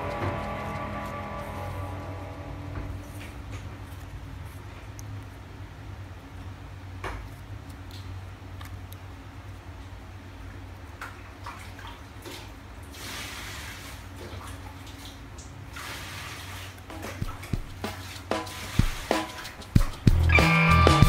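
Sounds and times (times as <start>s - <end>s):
steady low hum: 0.0s - 10.9s
cardboard rubbing scrape: 17.2s - 19.7s.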